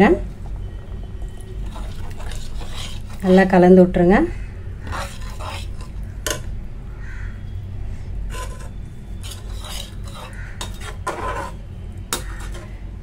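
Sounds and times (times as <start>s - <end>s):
skimmer scraping metal pan: 1.4s - 3.5s, 4.8s - 6.4s, 8.3s - 12.7s.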